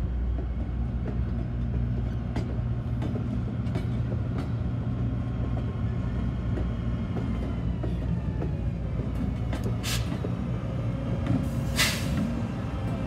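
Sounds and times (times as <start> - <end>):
diesel locomotive engine drone: 0.0 - 13.0
air hiss: 11.6 - 12.3.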